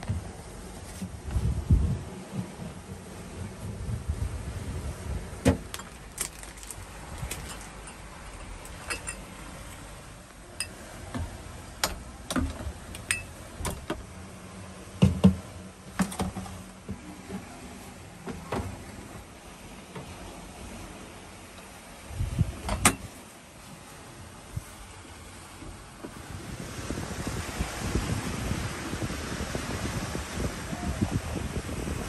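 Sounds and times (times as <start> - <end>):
glass bottles clinking: 5.8 - 9.3, 13.1 - 13.3.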